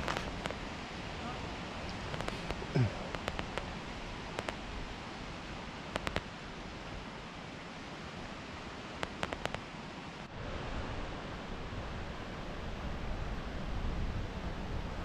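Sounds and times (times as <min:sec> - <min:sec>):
sharp crackling clicks: 0:00.0 - 0:00.6, 0:01.9 - 0:03.7, 0:04.3 - 0:04.6, 0:05.9 - 0:06.3, 0:09.0 - 0:09.6
steady outdoor rushing noise: 0:00.0 - 0:15.0.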